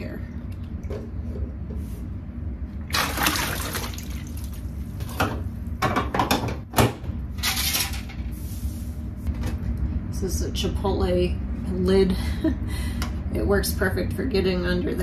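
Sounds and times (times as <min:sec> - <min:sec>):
water pouring and splashing: 0:02.9 - 0:04.8.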